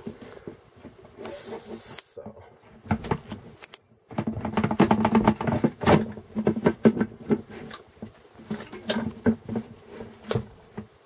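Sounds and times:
plastic cover clicking and rattling: 2.9 - 10.5.

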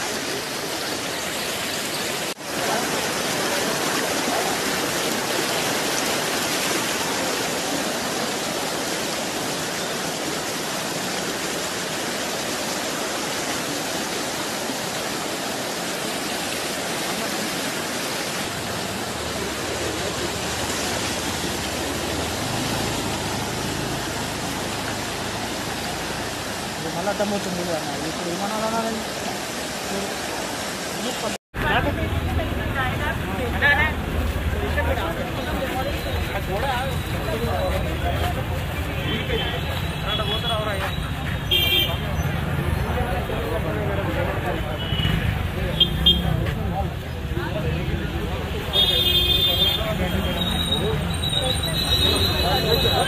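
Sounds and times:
floodwater rushing: 0.0 - 53.0.

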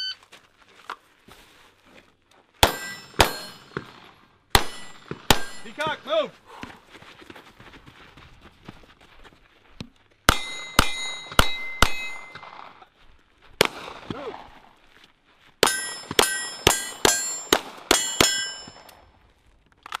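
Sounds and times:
metallic ring of steel target: 2.6 - 3.8, 4.6 - 5.9, 10.3 - 12.5, 15.6 - 18.9
gunshots: 2.6 - 6.2, 10.3 - 12.8, 13.6 - 14.6, 15.6 - 18.6.

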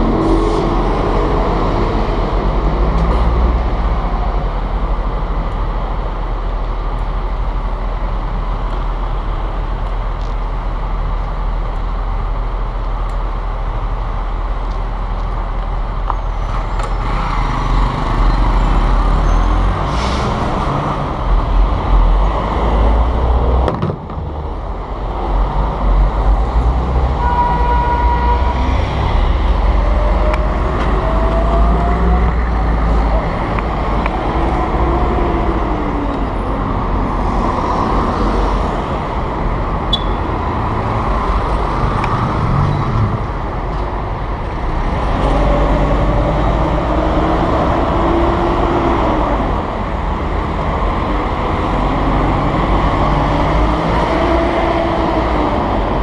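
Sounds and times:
street traffic engine rumble: 0.0 - 56.0
vehicle whines: 14.6 - 56.0.

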